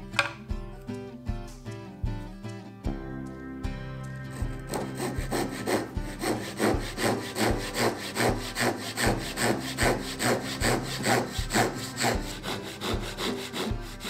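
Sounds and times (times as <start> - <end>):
hand saw cutting wood: 4.4 - 14.0.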